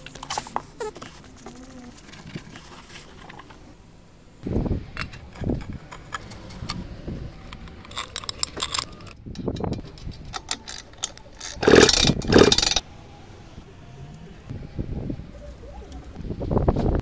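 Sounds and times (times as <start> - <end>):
ratchet wrench clicking: 7.5 - 12.8.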